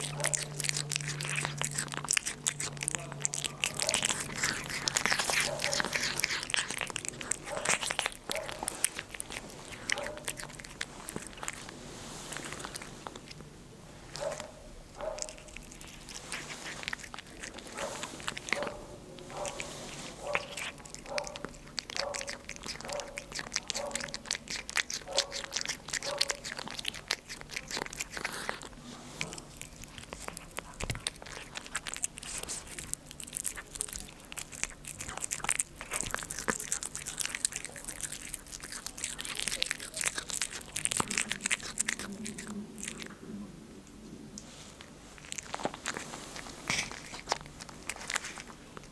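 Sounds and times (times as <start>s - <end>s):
cat chewing and licking: 0.0s - 48.9s.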